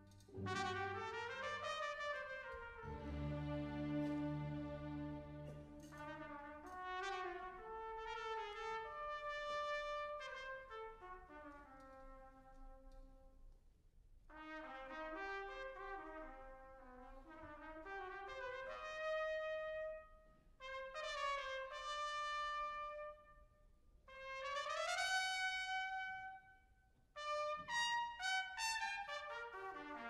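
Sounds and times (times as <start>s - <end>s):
soft orchestral accompaniment: 0.0s - 12.9s, 14.4s - 20.0s, 27.2s - 30.0s
solo trumpet melody: 0.0s - 12.9s, 14.3s - 23.4s, 24.1s - 26.5s, 27.2s - 30.0s.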